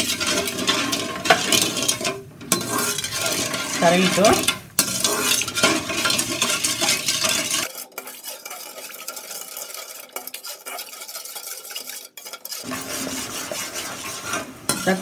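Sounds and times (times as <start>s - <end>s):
metal spatula scraping pan: 0.0s - 15.0s
sugar syrup bubbling: 6.4s - 13.4s.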